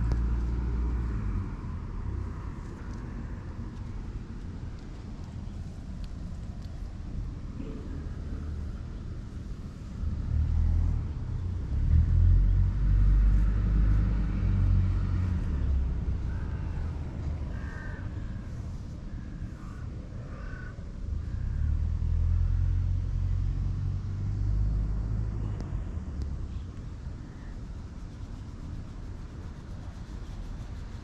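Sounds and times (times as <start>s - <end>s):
low rumble: 0.0s - 19.8s.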